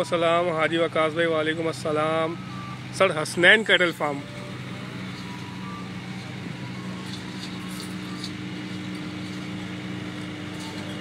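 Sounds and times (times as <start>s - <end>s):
low mechanical hum: 0.0s - 11.0s.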